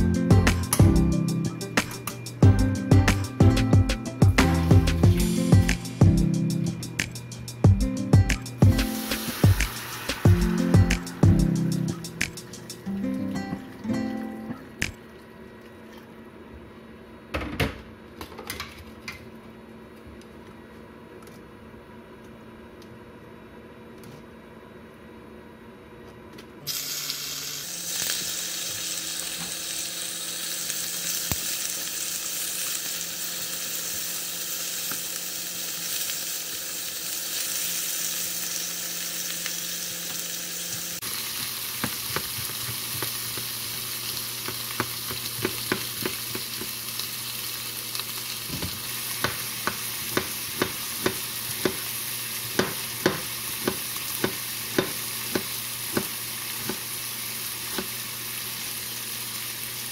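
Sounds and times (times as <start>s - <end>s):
meat sizzling in a frying pan: 8.6s - 11.9s, 26.7s - 59.9s
knife chopping on cutting board: 48.5s - 51.8s, 52.6s - 56.8s.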